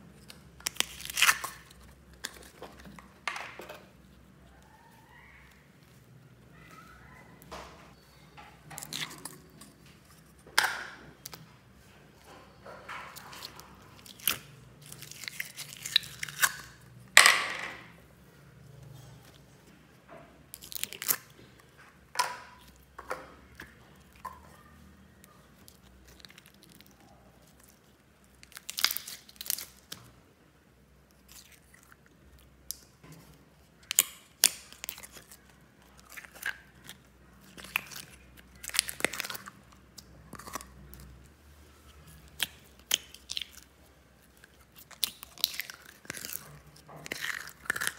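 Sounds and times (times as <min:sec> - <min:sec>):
hands squishing slime: 0:00.0 - 0:03.2, 0:13.1 - 0:16.9, 0:31.1 - 0:47.9.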